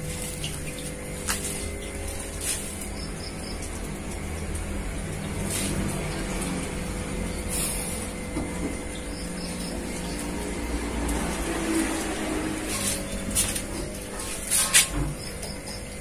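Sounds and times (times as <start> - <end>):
water draining through hose: 0.0 - 16.0
water pump humming: 0.0 - 16.0.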